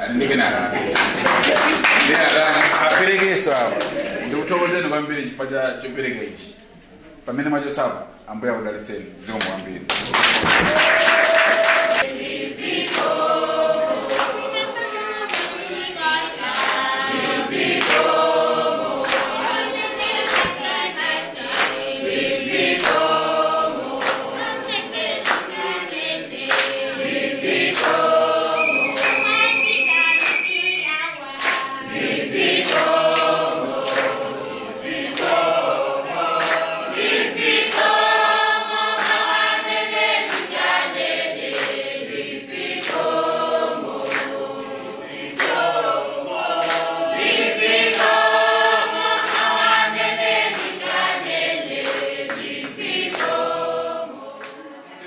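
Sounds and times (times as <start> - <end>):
hands clapping in time: 0.9 - 4.0, 9.3 - 12.1, 14.0 - 14.4, 19.0 - 19.4, 20.2 - 20.8, 21.4 - 21.8, 24.0 - 24.3, 25.2 - 25.8, 26.4 - 26.8, 27.7 - 31.8, 32.6 - 34.2, 34.9 - 35.5, 36.2 - 38.0, 41.4 - 41.8, 42.7 - 43.1, 44.0 - 44.4, 45.3 - 45.7, 46.6 - 47.3, 49.0 - 50.9, 51.7 - 53.5, 54.4 - 54.6
group singing: 10.4 - 55.0.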